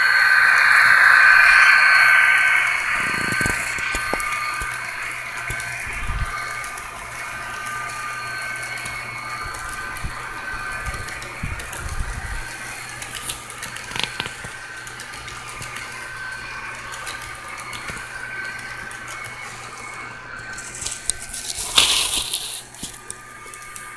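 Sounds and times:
sharp loud noise: 0:00.0 - 0:11.4
model train cars rumbling: 0:00.0 - 0:23.9.

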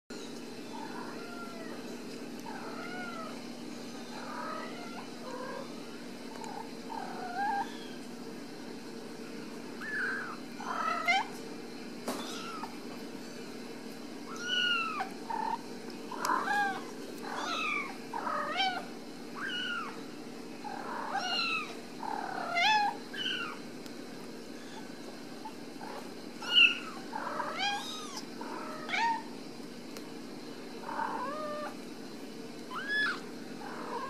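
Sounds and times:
low background hum: 0:00.1 - 0:34.0
kittens meowing: 0:04.2 - 0:08.1, 0:09.8 - 0:11.4, 0:12.1 - 0:12.8, 0:14.3 - 0:20.0, 0:20.7 - 0:23.6, 0:24.6 - 0:29.3, 0:32.7 - 0:34.0.

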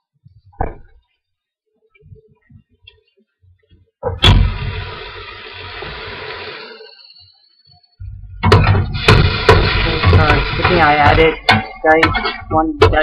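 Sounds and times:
food sizzling in pot: 0:04.2 - 0:12.8.

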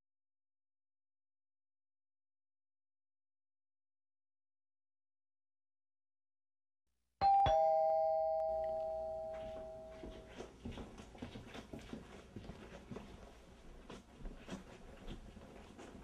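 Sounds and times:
two-tone doorbell chime: 0:07.2 - 0:10.3.

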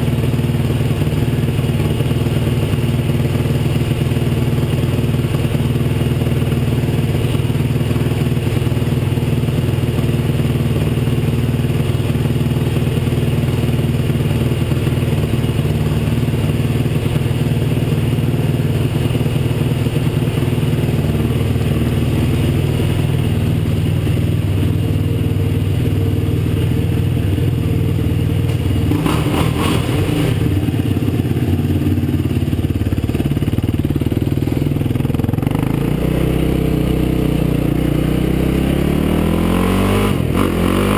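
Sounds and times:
quad engine idling: 0:00.0 - 0:40.9.

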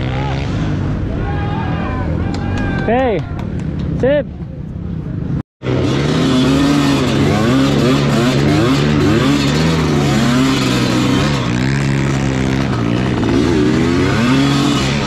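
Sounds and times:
motorcycle engine revving: 0:05.6 - 0:15.0.

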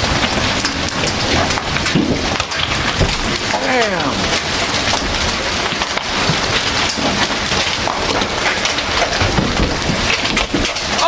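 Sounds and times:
hailstones clattering: 0:00.0 - 0:11.0
heavy rain: 0:00.0 - 0:11.0.

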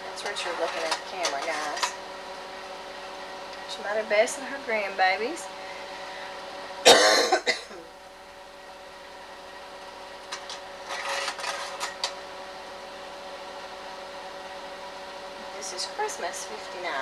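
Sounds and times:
faint steady hum: 0:00.0 - 0:17.0
slide projector clicking: 0:00.2 - 0:02.0, 0:10.2 - 0:12.2
person coughing: 0:06.8 - 0:07.9.

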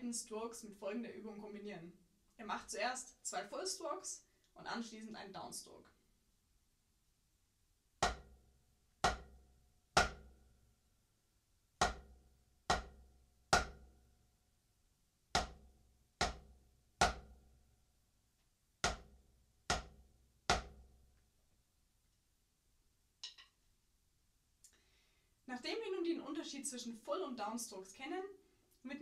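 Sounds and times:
drumsticks striking practice pad: 0:08.0 - 0:08.3, 0:09.0 - 0:09.4, 0:10.0 - 0:10.3, 0:11.8 - 0:12.1, 0:12.7 - 0:13.8, 0:15.4 - 0:15.6, 0:16.2 - 0:17.3, 0:18.8 - 0:19.1, 0:19.7 - 0:20.8.

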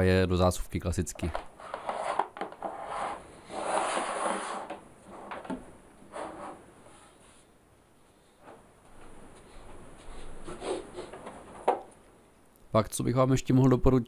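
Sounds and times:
speaker cabinet scraping on table: 0:01.6 - 0:07.2.

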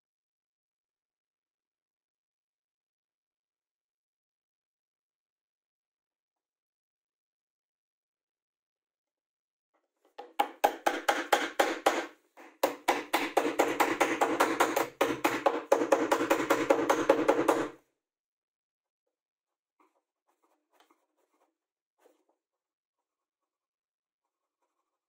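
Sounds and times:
rapid wooden tapping: 0:10.2 - 0:17.8.

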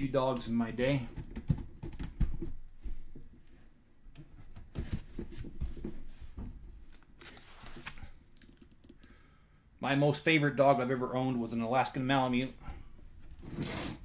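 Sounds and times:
soft rustle: 0:04.9 - 0:08.2.

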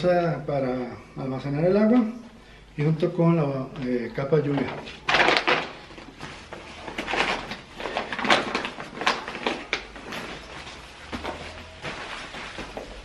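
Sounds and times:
plastic and nylon fabric rustling: 0:03.7 - 0:13.0.

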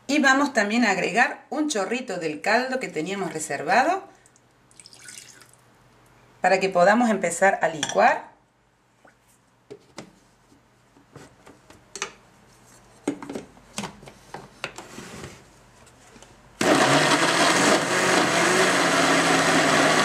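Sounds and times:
blender running loudly: 0:16.6 - 0:20.0.

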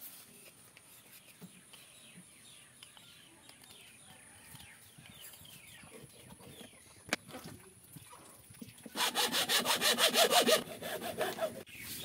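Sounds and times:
small birds chirping: 0:00.3 - 0:07.3.

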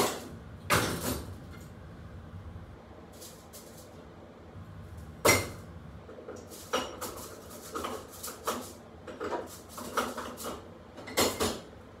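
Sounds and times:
metal stove grates clanking: 0:06.2 - 0:11.7.

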